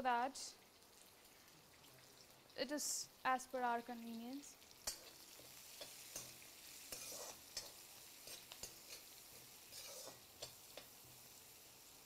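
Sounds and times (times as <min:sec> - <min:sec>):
vegetables sizzling in a pan: 0:00.0 - 0:12.0
metal spatula clinking on pan: 0:04.8 - 0:11.0.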